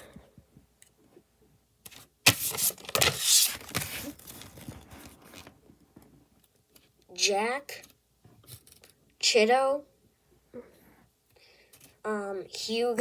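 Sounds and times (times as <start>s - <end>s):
paper rustling and scraping on table: 1.9s - 5.6s.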